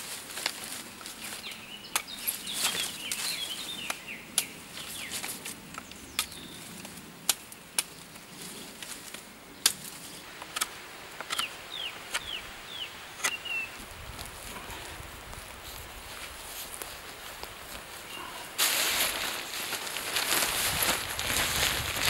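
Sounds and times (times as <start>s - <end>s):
dry branches snapping: 0.1s - 11.5s, 16.7s - 22.0s.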